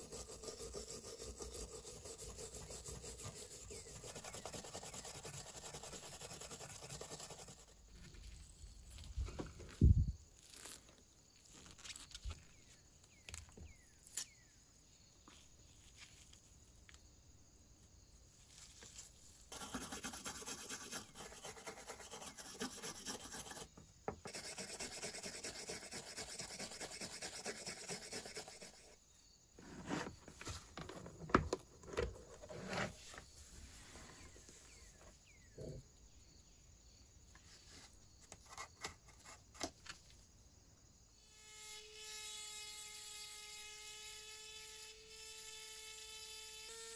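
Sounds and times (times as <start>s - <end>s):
wire brush scrubbing metal: 0.0s - 7.6s.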